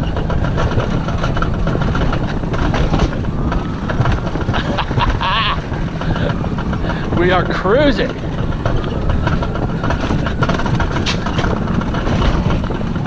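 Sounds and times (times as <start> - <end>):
coaster wheels rumbling on track: 0.0 - 13.0
wind noise on microphone: 0.0 - 13.0.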